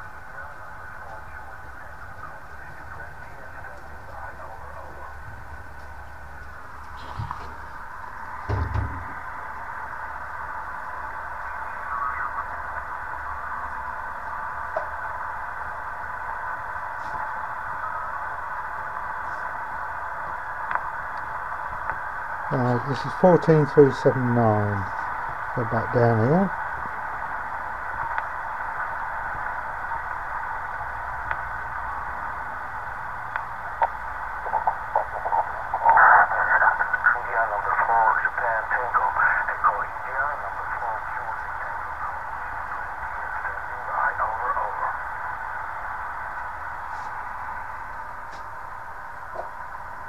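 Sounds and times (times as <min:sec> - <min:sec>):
radio static hiss: 0:00.0 - 0:50.0
broken radio voice: 0:34.4 - 0:45.1.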